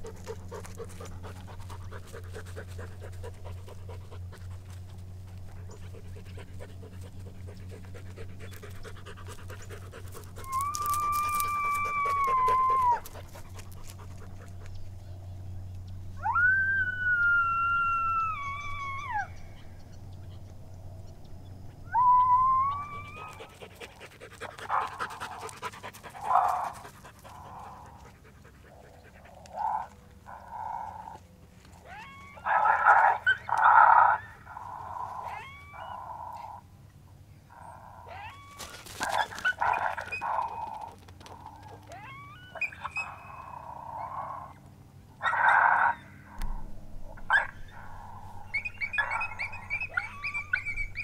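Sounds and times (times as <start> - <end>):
coyote howling: 10.3 - 13.4, 16.2 - 20.5, 21.7 - 23.7, 29.3 - 36.6, 37.5 - 51.0
coyote barks and yips: 21.8 - 23.7, 31.8 - 36.6, 37.5 - 40.9, 41.5 - 44.6, 45.2 - 51.0.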